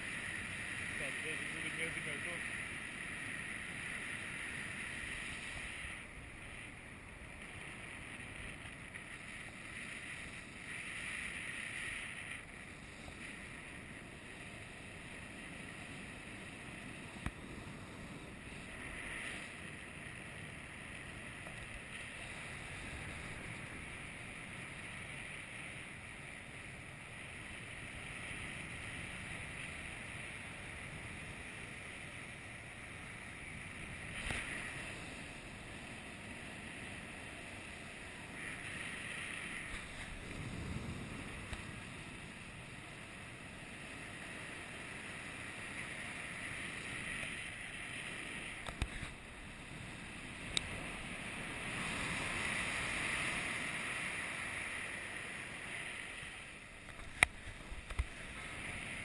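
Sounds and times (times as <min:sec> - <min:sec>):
wind rushing over microphone: 0:27.3 - 0:59.0.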